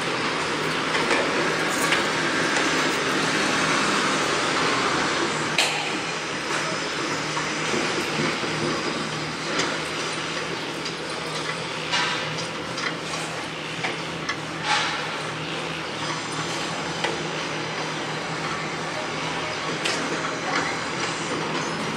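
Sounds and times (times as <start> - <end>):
machinery engine drone: 0.0 - 21.9
metallic clanks and knocks: 5.6 - 6.7, 10.9 - 15.4.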